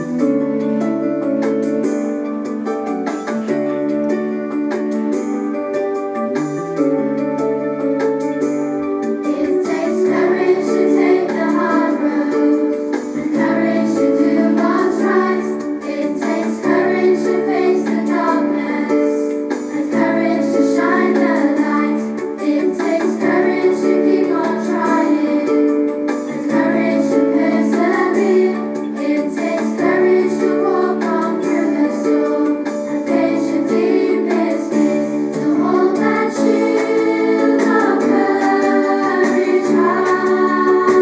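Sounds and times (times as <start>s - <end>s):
sustained keyboard chords: 0.0s - 41.0s
person singing: 9.2s - 41.0s.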